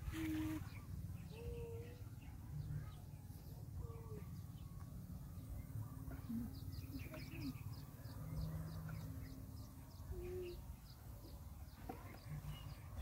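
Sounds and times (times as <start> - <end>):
soft bird coos: 0.0 - 2.0, 6.1 - 7.7, 10.1 - 10.7
bird chirps: 5.4 - 13.0.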